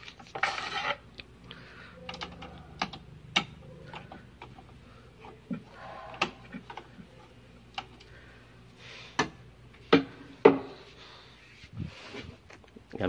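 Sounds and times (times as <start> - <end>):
hand tools clicking and knocking: 2.0 - 8.1.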